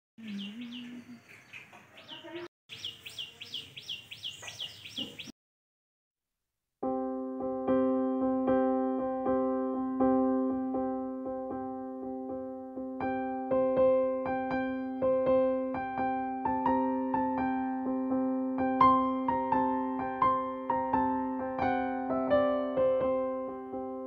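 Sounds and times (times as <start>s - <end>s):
birds chirping: 0.2s - 5.4s
electric piano music: 6.8s - 24.0s.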